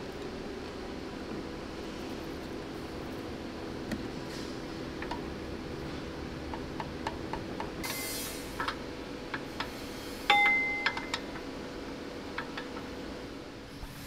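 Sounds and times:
short hiss: 0:07.8 - 0:08.5.

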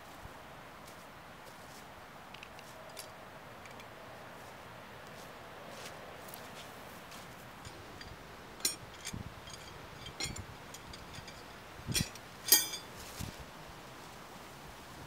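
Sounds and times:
metal tools clicking and knocking: 0:02.4 - 0:03.9, 0:07.6 - 0:12.9
iron bar clinking down: 0:07.6 - 0:12.9.

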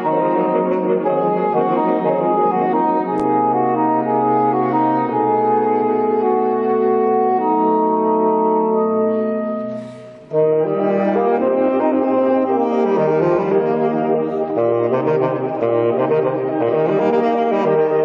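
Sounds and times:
saxophone quartet playing: 0:00.0 - 0:18.0.

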